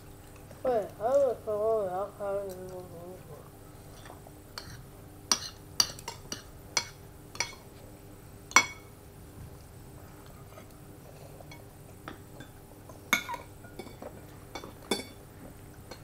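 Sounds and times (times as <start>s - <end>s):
tableware clinking: 8.5s - 8.9s, 11.5s - 15.2s.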